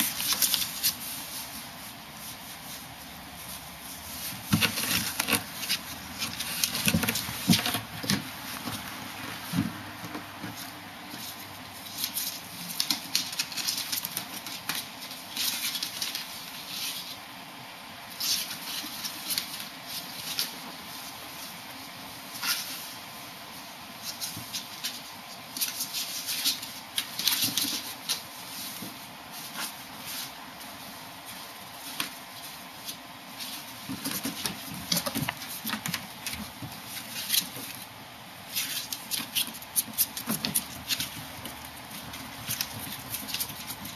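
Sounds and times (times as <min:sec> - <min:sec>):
cardboard rustling: 0:00.0 - 0:17.2, 0:23.9 - 0:43.9
claws scratching on cardboard box: 0:04.0 - 0:09.2.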